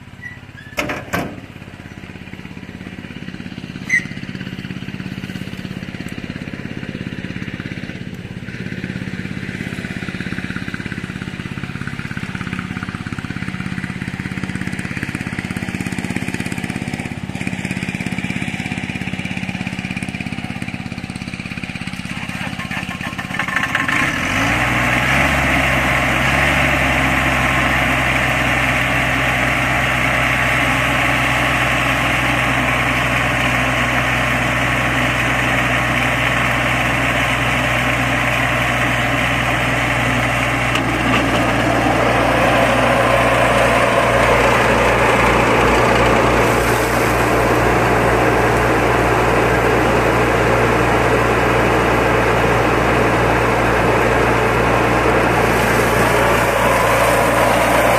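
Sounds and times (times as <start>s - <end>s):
ride-on mower engine running: 0.0s - 57.9s.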